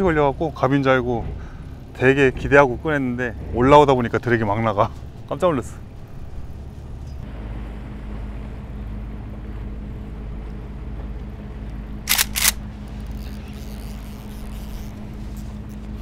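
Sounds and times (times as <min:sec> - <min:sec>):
boat engine idling: 0:00.0 - 0:16.0
sharp clicking bursts: 0:12.1 - 0:15.0.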